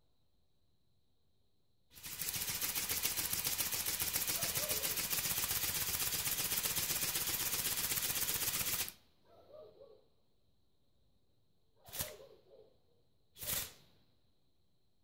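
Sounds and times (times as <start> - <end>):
toy wings flapping buzz: 2.0 - 9.0.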